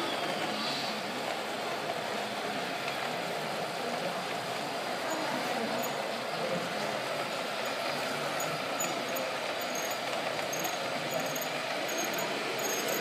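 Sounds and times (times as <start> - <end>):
model truck motors whirring: 7.6 - 13.0.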